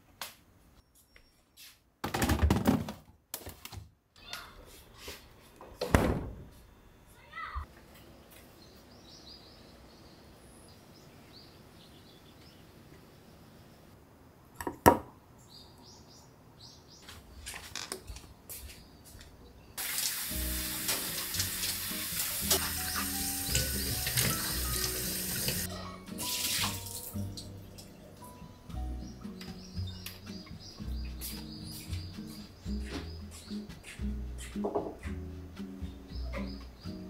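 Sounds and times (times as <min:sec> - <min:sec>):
tap water running into sink: 0:19.8 - 0:27.2.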